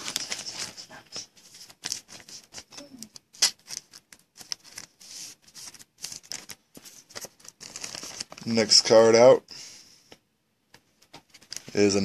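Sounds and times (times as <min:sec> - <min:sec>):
trading cards clicking and rustling: 0:00.0 - 0:08.5.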